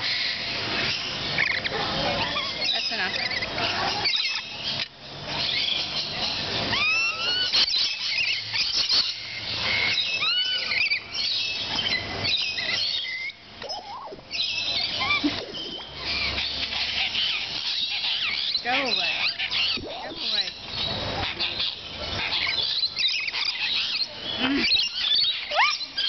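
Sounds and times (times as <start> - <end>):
parrots chattering and screeching: 0.0 - 26.0
bird whistled notes: 9.9 - 20.5.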